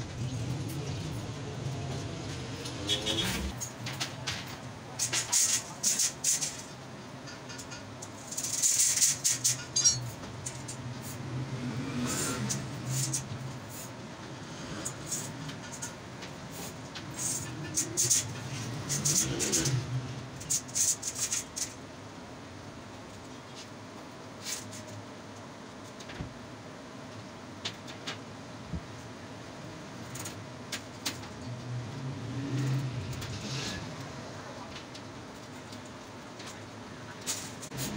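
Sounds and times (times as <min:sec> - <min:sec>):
low background hum: 0:00.0 - 0:37.9
steel wire rattling on metal frame: 0:01.9 - 0:11.2.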